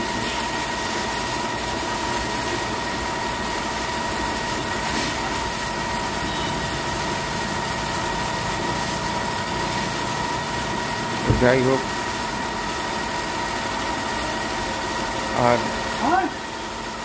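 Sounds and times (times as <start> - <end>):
electric pump humming: 0.0 - 17.0.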